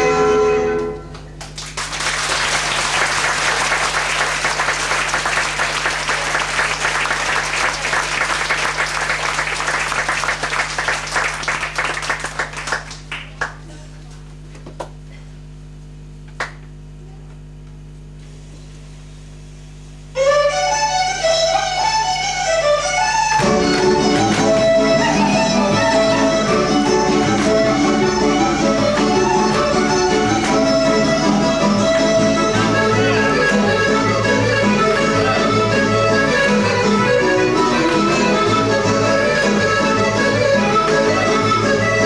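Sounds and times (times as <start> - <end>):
low room hum: 0.0 - 42.0
audience applauding: 1.4 - 13.7
fiddle-led folk music: 20.2 - 42.0.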